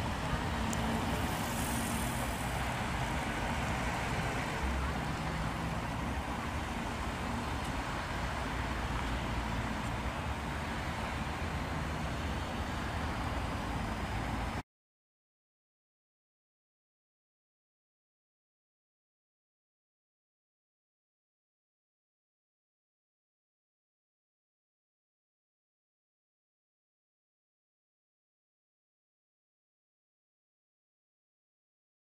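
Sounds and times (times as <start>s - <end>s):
road traffic rumble: 0.0s - 14.6s.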